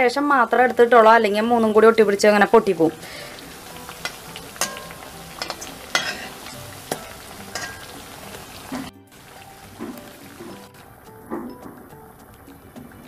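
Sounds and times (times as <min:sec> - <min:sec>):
fritters sizzling in hot oil: 0:00.0 - 0:13.0
metal spatula scraping a pan: 0:02.9 - 0:08.9.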